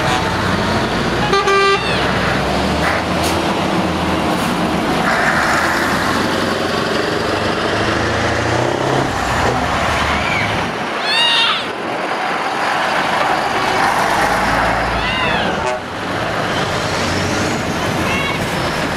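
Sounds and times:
truck horn toot: 0.0 - 0.4, 1.2 - 2.1, 13.2 - 14.0, 15.3 - 16.0
truck diesel engine running: 0.0 - 11.0
tipper truck diesel engine: 0.0 - 18.9.

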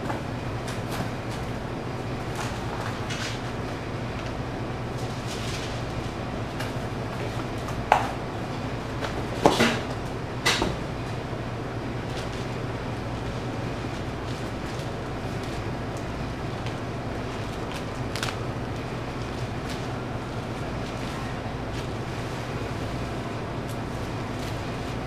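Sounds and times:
steady low hum: 0.0 - 25.0
cardboard rustling and scraping: 5.0 - 7.7.

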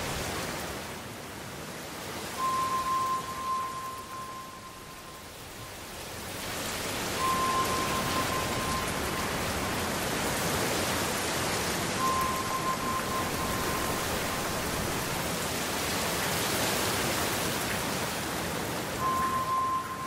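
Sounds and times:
heavy rain hissing: 0.0 - 0.9, 1.6 - 17.3
thin high tone: 2.4 - 5.9, 7.0 - 9.8, 12.0 - 15.2, 19.0 - 20.0.

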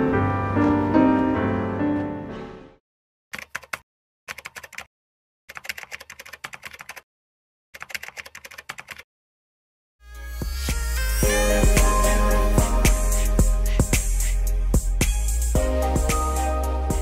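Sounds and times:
piano music: 0.0 - 2.8, 11.2 - 14.9, 15.5 - 17.0
keyboard typing: 3.3 - 4.9, 5.5 - 7.0, 7.8 - 9.0.

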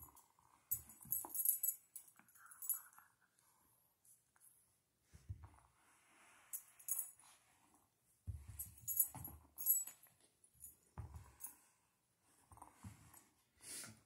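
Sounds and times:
dog collar tags jingling: 0.0 - 2.9.

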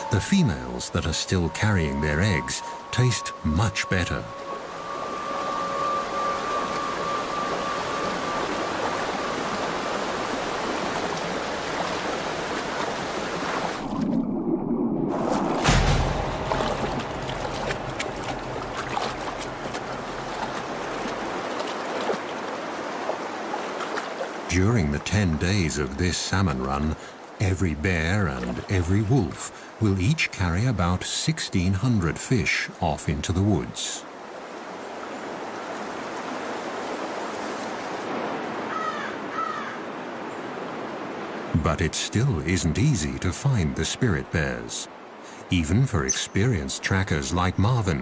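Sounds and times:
creek water running: 0.0 - 48.0
stream rushing: 0.0 - 48.0
small water splashes: 10.0 - 24.5
bird calling: 38.6 - 40.5, 46.0 - 46.4.

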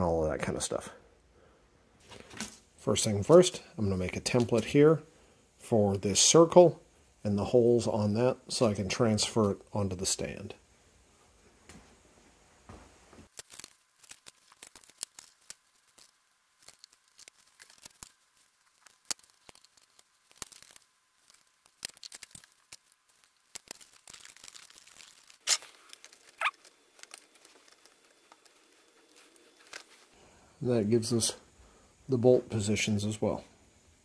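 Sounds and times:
plastic sheet crinkling: 13.2 - 30.2.

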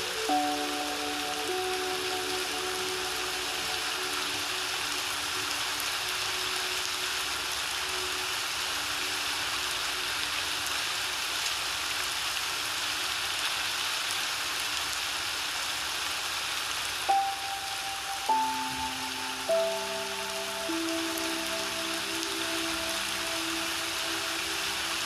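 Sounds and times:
piano tones: 0.0 - 9.2, 17.1 - 25.0
rain falling: 0.0 - 25.0.

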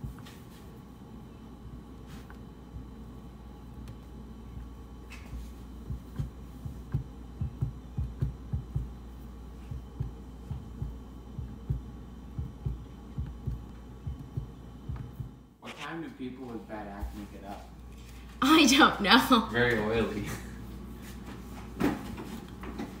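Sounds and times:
steady low hum: 0.0 - 23.0
fork knocking on dough: 5.3 - 9.0.

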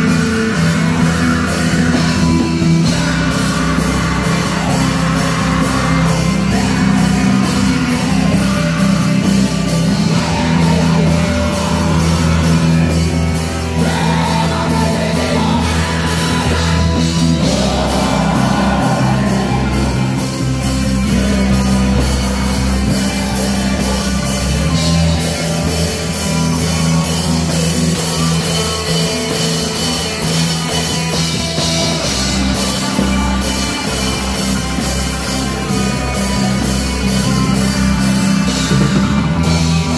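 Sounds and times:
drum kit: 0.0 - 39.9
electric bass: 0.0 - 39.9
electric guitar: 0.0 - 39.9
person singing into microphone: 0.1 - 20.3.

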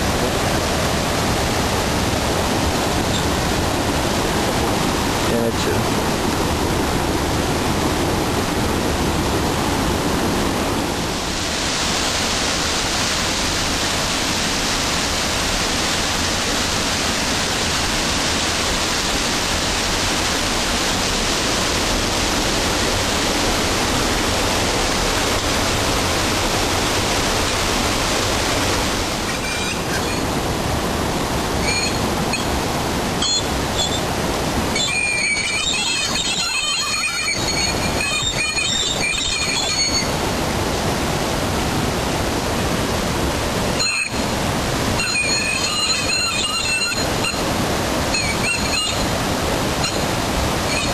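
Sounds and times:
river rapids rushing over boulders: 0.0 - 50.9
short high squeaks: 29.2 - 30.3, 31.6 - 32.5, 33.2 - 34.0, 34.7 - 40.1, 43.8 - 44.2, 45.0 - 47.4, 48.1 - 49.0.

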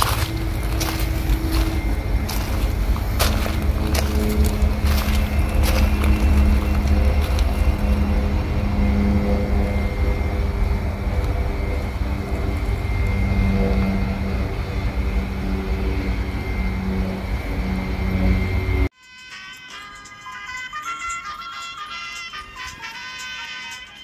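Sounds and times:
freight train wheels rumbling: 0.0 - 18.9
high-pitched whine: 0.0 - 24.0.

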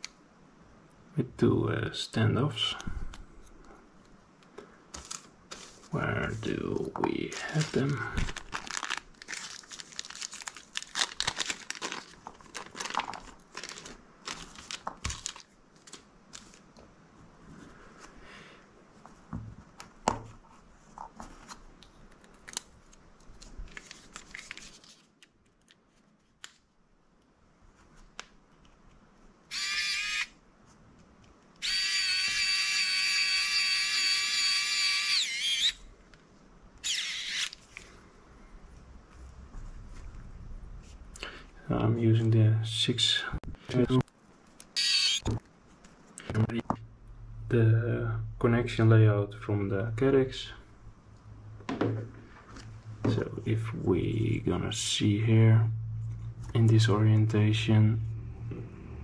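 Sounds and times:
plastic bag crinkling: 4.9 - 6.4, 7.2 - 16.8
electric screwdriver motor whining: 29.5 - 30.3, 31.6 - 35.8, 36.8 - 37.5, 44.8 - 45.2.

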